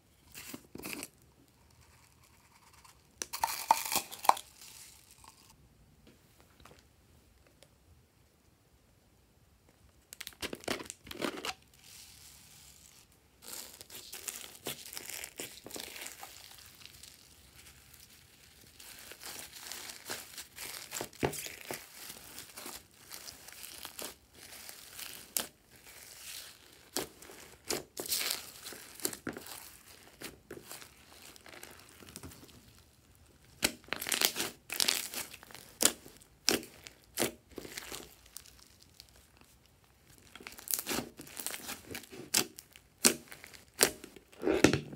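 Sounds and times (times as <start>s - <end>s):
slime crackling and popping: 3.2s - 5.5s, 13.4s - 44.9s.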